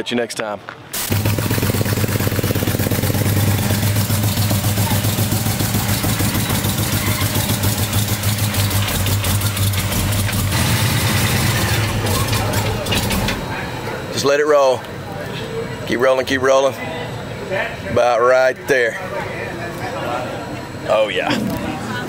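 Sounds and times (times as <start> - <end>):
engine idling with misfire: 1.0 - 14.4.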